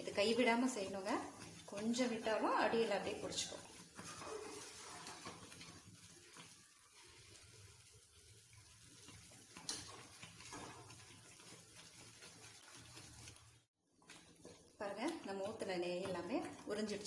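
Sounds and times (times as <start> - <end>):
batter bubbling in a pan: 0.0 - 17.0
wooden spatula stirring in pan: 0.0 - 17.0.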